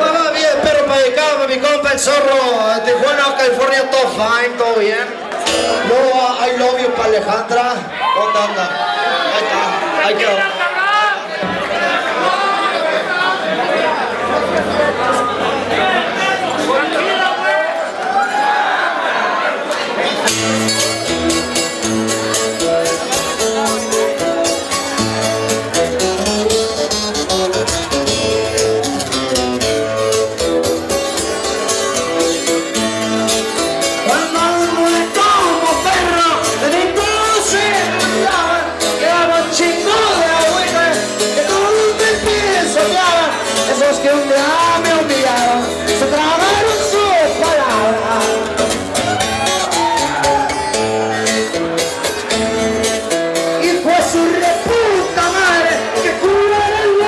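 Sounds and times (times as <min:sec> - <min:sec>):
live band music: 0:05.3 - 0:07.1, 0:20.2 - 0:57.0
person singing into a microphone: 0:34.0 - 0:48.7, 0:53.6 - 0:57.0.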